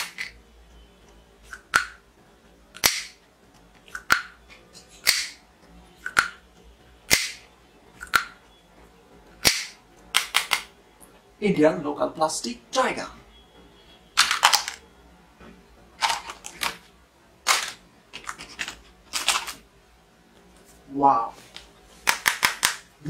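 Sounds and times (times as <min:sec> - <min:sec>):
toy pistol snaps: 0:02.8 - 0:03.1, 0:05.0 - 0:05.4, 0:07.1 - 0:07.4, 0:09.4 - 0:10.7.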